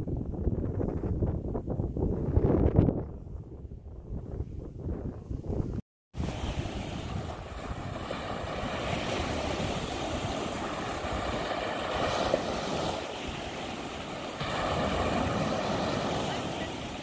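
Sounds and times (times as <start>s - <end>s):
wind buffeting microphone: 0.0s - 17.0s
waves washing on shore: 6.2s - 17.0s.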